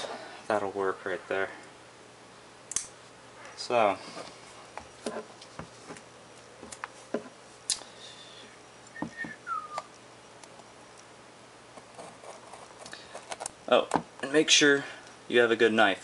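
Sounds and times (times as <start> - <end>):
sharp click: 2.7 - 2.9.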